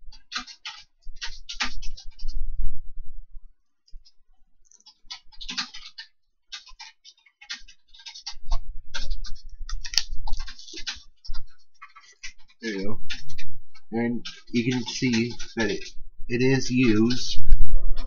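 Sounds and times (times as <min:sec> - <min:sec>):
plastic packaging crackling: 0:09.0 - 0:10.8.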